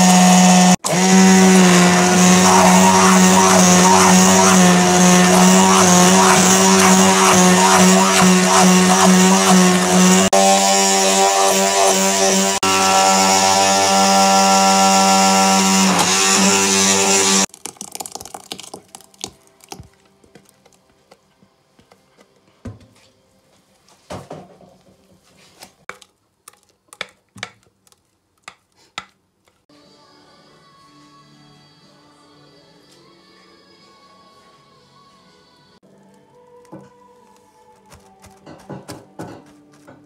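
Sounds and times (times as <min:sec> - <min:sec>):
electric hand mixer running: 0:00.0 - 0:18.7.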